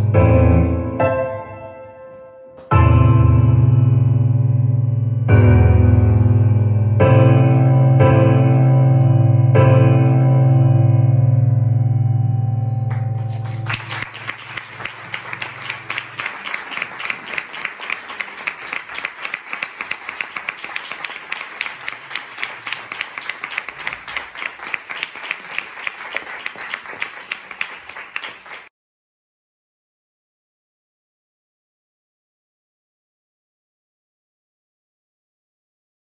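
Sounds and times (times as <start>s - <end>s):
audience applause: 12.9s - 28.7s.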